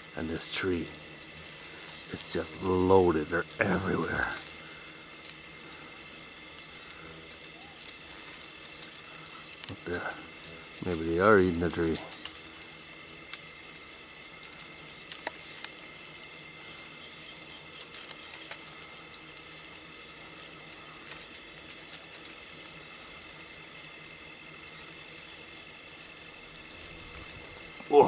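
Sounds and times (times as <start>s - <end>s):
beetles swarming buzzing drone: 0.0s - 28.0s
faint ticks: 7.8s - 13.5s, 14.3s - 15.8s.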